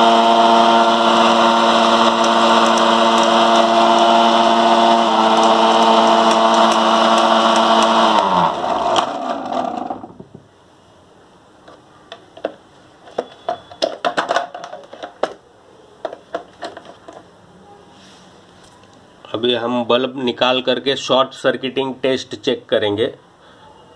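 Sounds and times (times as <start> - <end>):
motor humming and winding down: 0.0 - 10.2
clicks and knocks: 11.6 - 15.4, 16.0 - 17.3.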